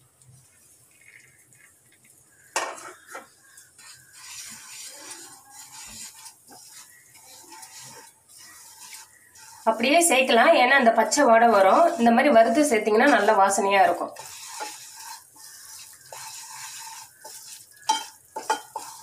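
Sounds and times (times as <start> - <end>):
wooden spatula scraping pan: 2.6 - 19.0
spatula knocking on pan: 17.9 - 19.0.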